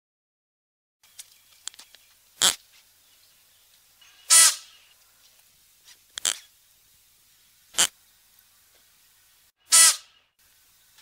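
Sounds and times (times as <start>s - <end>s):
antelope whistle-like calls: 4.0s - 4.9s, 9.7s - 10.2s.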